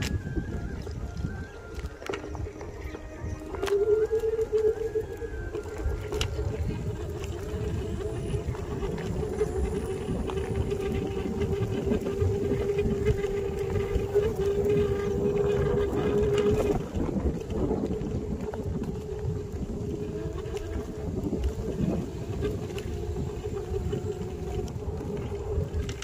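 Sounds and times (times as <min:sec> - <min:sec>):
electric scooter motor whining: 0:00.0 - 0:26.0
low rumble on dirt track: 0:00.0 - 0:26.0.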